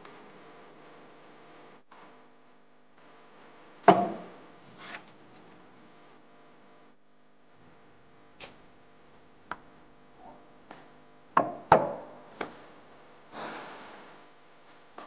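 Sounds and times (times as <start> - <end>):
loud knocks on wooden cabinet: 11.4 - 12.0.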